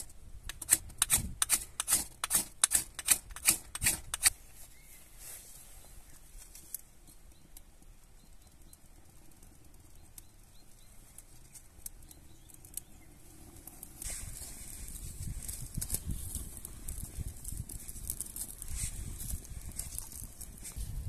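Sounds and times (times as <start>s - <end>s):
wood fire crackling and popping: 6.5s - 21.0s.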